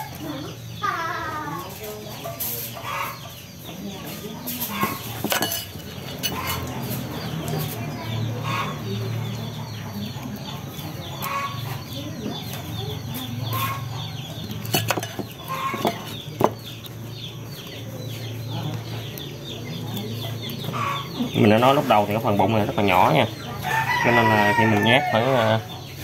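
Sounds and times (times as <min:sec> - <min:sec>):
chickens clucking and peeping: 0:00.0 - 0:26.0.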